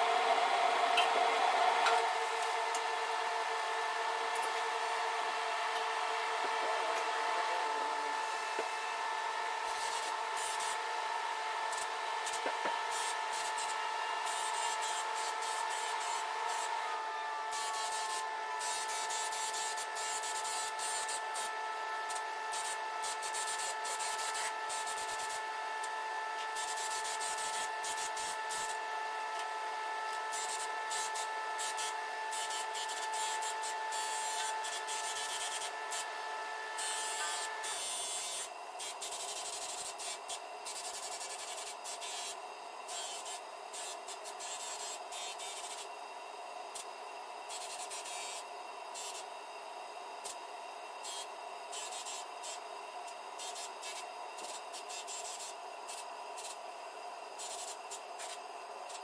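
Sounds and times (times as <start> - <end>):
fixed-pitch whine: 0.0 - 38.2.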